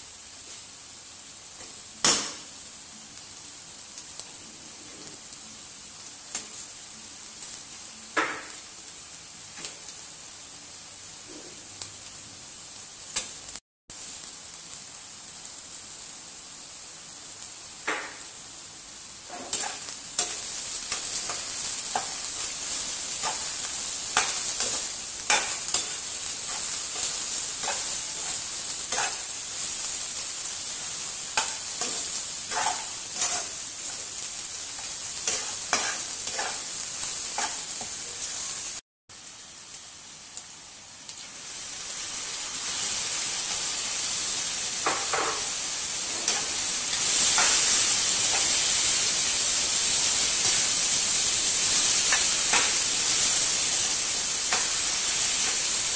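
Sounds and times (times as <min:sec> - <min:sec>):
food sizzling in a wok: 0:00.0 - 0:55.9
spatula scraping a pan: 0:19.3 - 0:29.8, 0:30.7 - 0:34.1, 0:34.8 - 0:38.6, 0:44.8 - 0:49.0.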